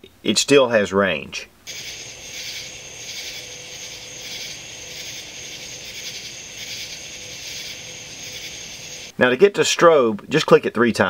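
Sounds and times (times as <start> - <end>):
faint steady hum: 0.0 - 9.2
night insects chirring: 1.7 - 9.2.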